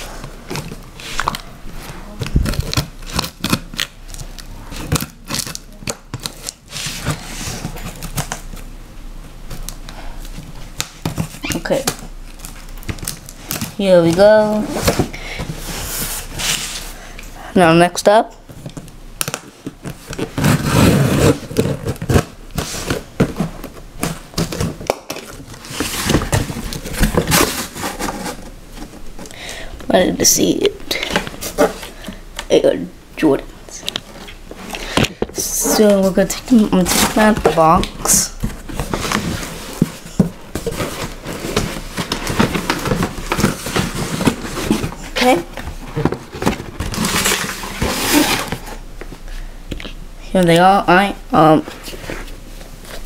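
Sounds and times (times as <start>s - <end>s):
cardboard box scraping and rustling: 20.0s - 23.6s, 25.5s - 28.9s, 35.4s - 37.7s, 38.4s - 48.8s.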